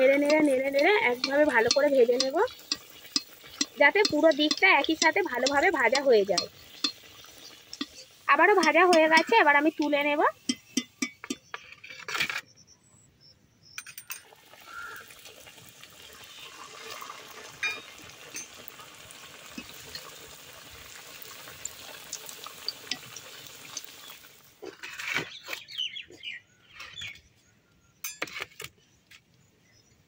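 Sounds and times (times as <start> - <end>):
food deep-frying in oil: 0.0 - 11.4, 14.1 - 24.6.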